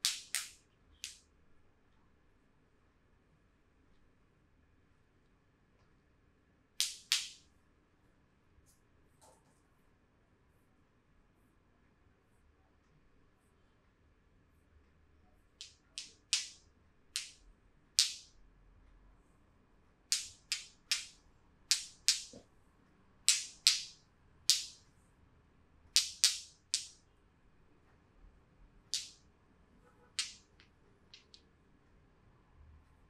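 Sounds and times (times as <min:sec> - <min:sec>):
hands slapping bare skin: 0:00.0 - 0:01.2, 0:06.8 - 0:07.4, 0:15.6 - 0:16.6, 0:17.2 - 0:17.4, 0:20.1 - 0:22.4, 0:23.3 - 0:24.8, 0:26.0 - 0:27.0, 0:28.9 - 0:29.2, 0:30.2 - 0:30.5.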